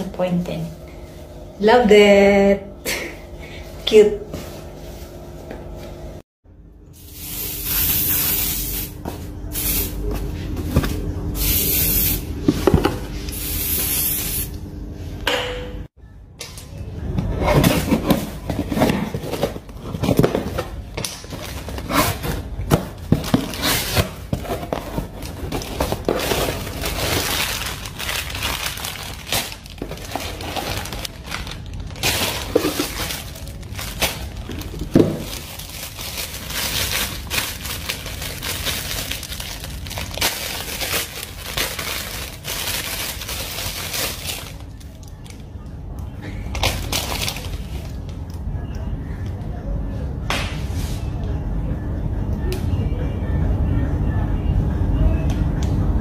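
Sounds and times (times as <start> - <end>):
plastic packaging crinkling: 23.0 - 45.3, 46.6 - 48.0.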